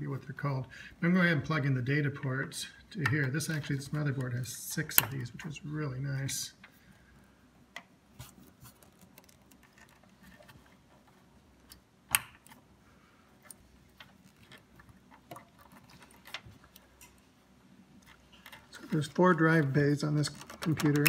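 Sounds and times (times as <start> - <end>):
cables rustling: 8.1 - 21.0
cable connectors clicking: 18.0 - 21.0.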